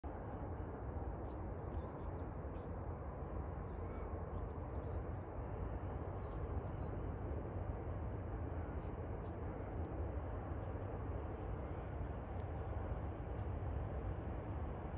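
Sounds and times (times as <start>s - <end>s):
distant diesel locomotive rumble: 0.0s - 14.9s
small birds chirping: 1.0s - 7.0s.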